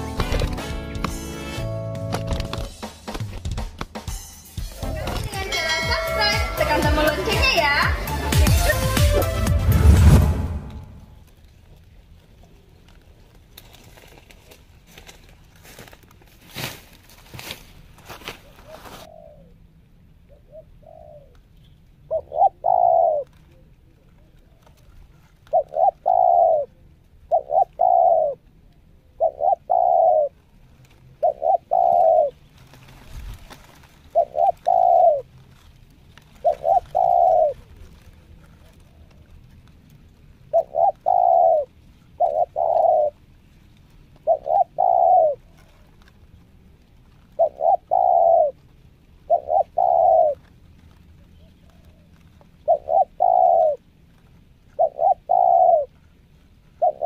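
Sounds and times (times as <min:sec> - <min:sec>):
dove cooing: 0:18.4 - 0:57.0.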